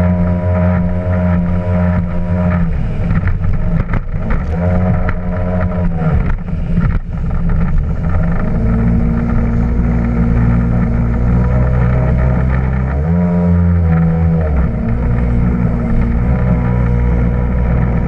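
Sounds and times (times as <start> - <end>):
jet ski engine running: 0.0 - 18.0
water splashing against hull: 0.0 - 18.0.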